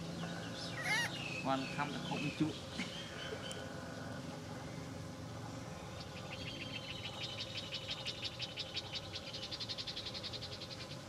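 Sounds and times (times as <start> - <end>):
animal calling with pulsing trill: 0.8 - 1.2.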